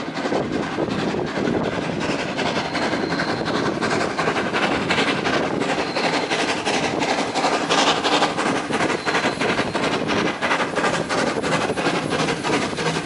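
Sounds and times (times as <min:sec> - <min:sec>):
steam locomotive chuffing: 0:00.0 - 0:13.0.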